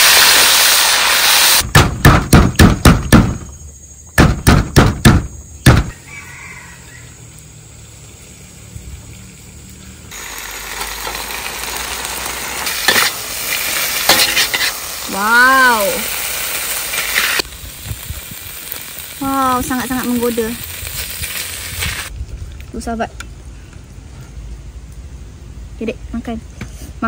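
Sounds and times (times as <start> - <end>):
food sizzling in a wok: 0.0 - 1.7, 5.9 - 22.2
loud sharp knocks: 1.6 - 3.5, 4.2 - 5.9.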